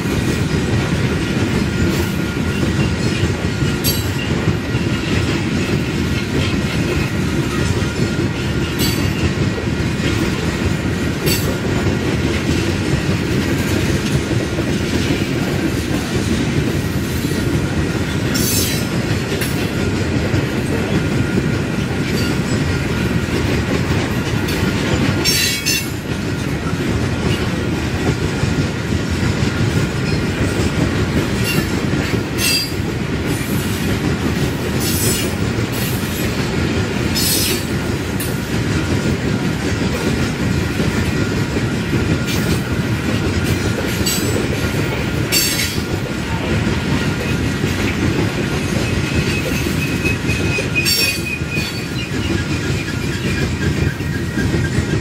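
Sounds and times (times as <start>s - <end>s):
train wheels rumbling on rails: 0.0s - 55.0s
wheel squeals: 48.7s - 54.8s.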